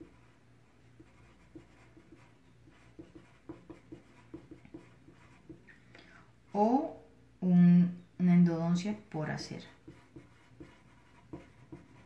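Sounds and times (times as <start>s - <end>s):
pencil scratching on paper: 0.0s - 5.6s, 9.6s - 12.0s.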